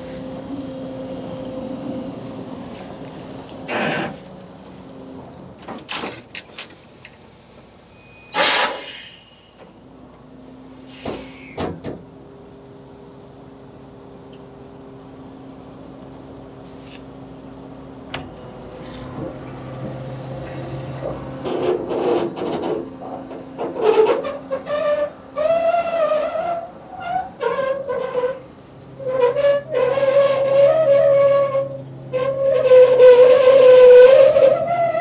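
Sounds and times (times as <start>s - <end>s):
clunks and knocks: 5.6s - 6.9s, 11.1s - 12.1s
short loud burst of noise: 8.2s - 9.5s
diesel engine idling: 9.0s - 18.1s.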